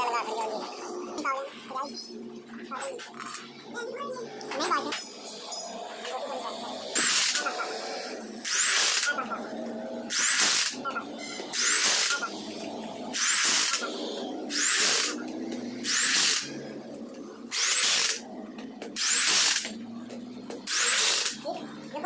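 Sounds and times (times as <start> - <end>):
power tool hissing bursts: 8.4 - 9.1, 13.2 - 15.2, 15.8 - 16.5, 20.7 - 21.4.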